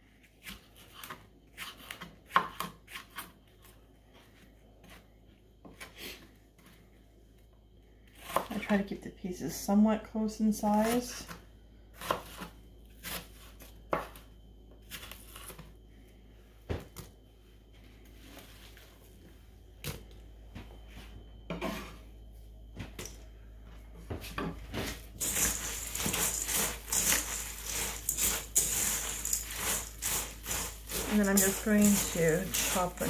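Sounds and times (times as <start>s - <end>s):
bread cubes tossed in bowl: 24.8s - 33.0s
food scraped into steel bowl: 25.2s - 33.0s.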